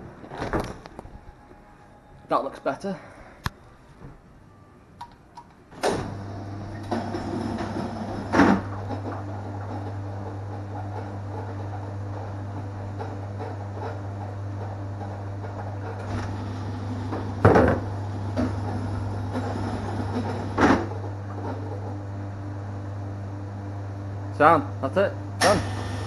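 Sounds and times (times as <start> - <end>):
loud mechanical clunk: 5.7 - 12.3, 15.4 - 21.9, 25.4 - 26.0
pinsetter motor hum and rattle: 5.8 - 24.1, 25.4 - 26.0
machine knock: 17.0 - 18.8.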